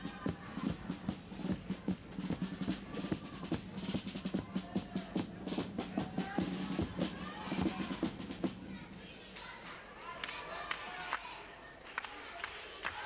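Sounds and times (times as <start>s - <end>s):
bass drum and snare beating: 0.0s - 8.8s.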